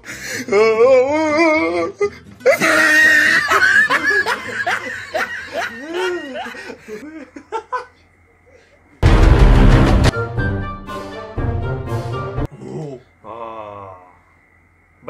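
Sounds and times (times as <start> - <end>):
men laughing hard: 1.2 - 8.1.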